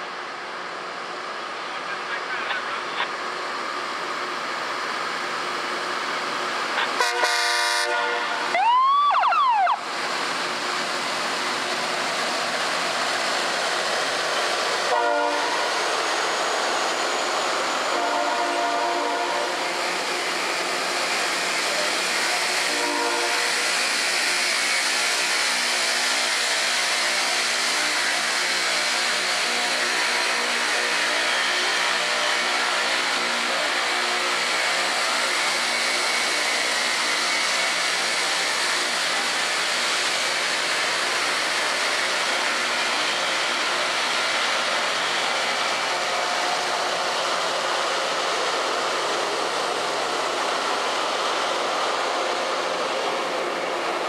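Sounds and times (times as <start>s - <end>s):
grinding stones hissing on rail: 0.0s - 8.6s, 9.8s - 54.0s
diesel engines droning: 0.0s - 54.0s.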